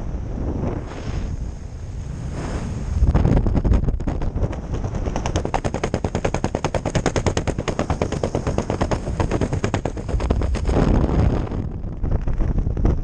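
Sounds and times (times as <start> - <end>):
wind noise on microphone: 0.0 - 13.0
fabric flapping rapidly: 3.3 - 13.0.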